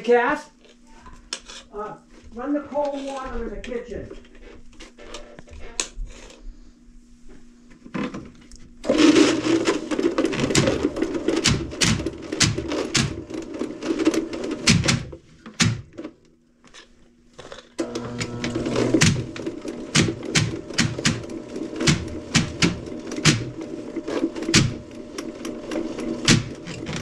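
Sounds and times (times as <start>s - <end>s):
drain cleaning cable rattling: 8.8s - 16.2s, 17.8s - 27.0s.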